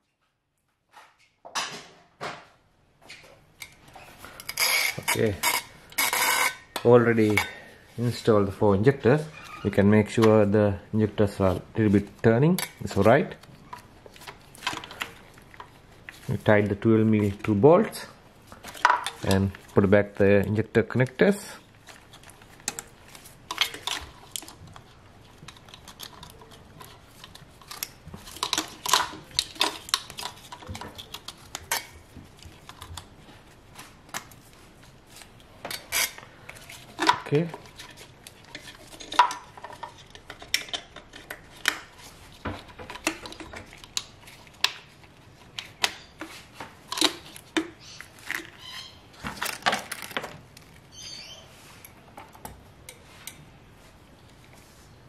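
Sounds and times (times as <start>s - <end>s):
plastic connectors clicking: 25.5s - 31.9s.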